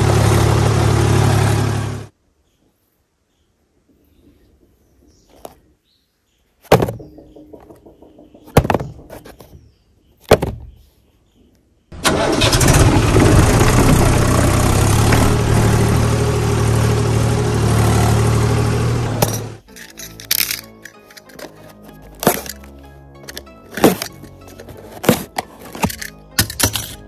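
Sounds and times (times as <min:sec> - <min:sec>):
tractor engine running: 0:00.0 - 0:02.1, 0:11.9 - 0:21.5
sharp knocks: 0:06.7 - 0:09.5.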